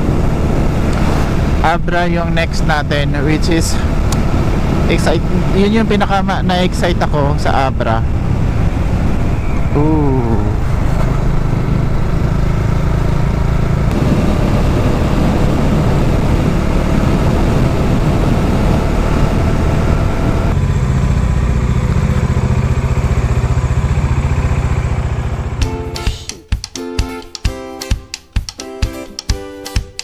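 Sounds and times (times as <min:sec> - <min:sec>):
motorcycle engine running: 0:00.0 - 0:26.0
road noise: 0:00.0 - 0:26.3.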